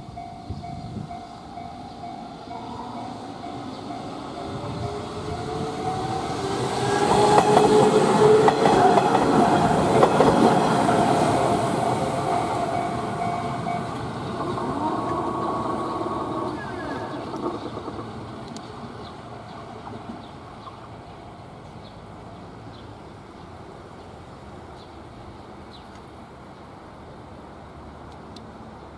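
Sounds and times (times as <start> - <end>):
level-crossing warning bell: 0.0 - 15.5
electric train passing: 0.0 - 28.9
train wheels clacking over rail joints: 5.4 - 15.3.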